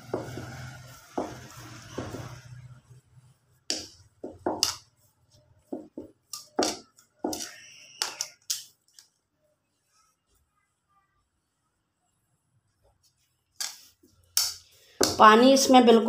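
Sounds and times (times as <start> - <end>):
dough squishing in plastic bowl: 0.0 - 9.4, 12.7 - 15.6.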